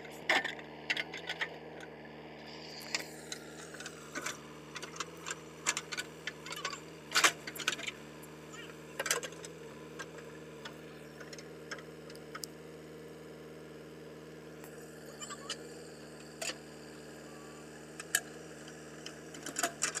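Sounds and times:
diesel engine running: 0.0 - 20.0.

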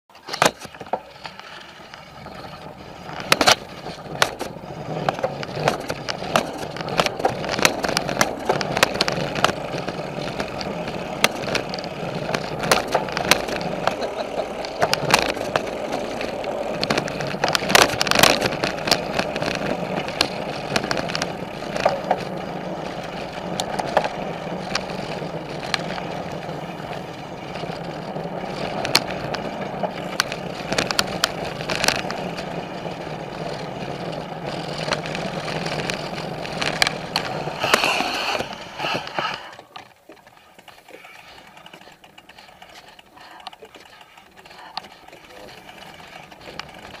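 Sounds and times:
bike rattling over wooden boards: 0.1 - 47.0
bike tyres rolling rumble: 0.1 - 47.0.

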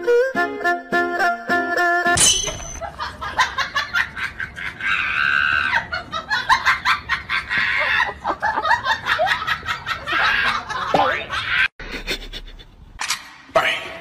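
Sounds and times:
people laughing: 2.8 - 12.7.

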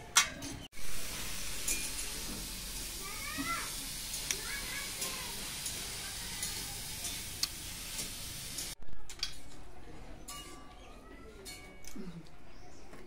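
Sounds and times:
steady hiss: 0.8 - 8.8.

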